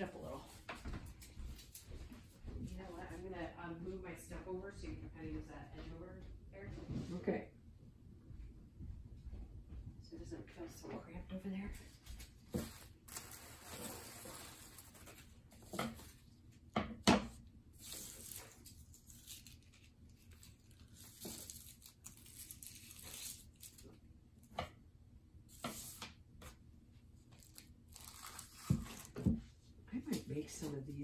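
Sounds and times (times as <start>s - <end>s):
paper and plastic rustling: 12.1s - 16.3s, 17.8s - 23.9s.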